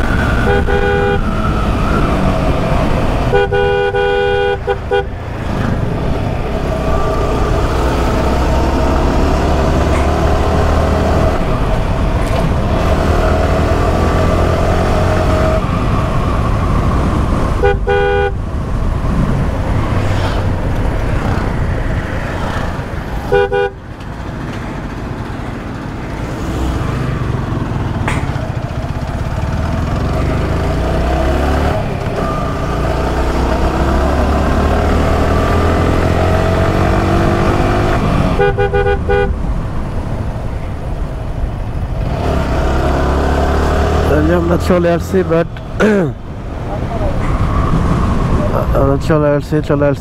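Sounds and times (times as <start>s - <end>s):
wind noise: 0.0s - 4.0s, 4.6s - 29.1s, 45.5s - 50.0s
motorcycle engine: 0.0s - 49.0s
vehicle horn beeps: 0.4s - 1.2s, 3.3s - 5.1s, 17.6s - 18.4s, 23.3s - 23.8s, 38.4s - 39.3s.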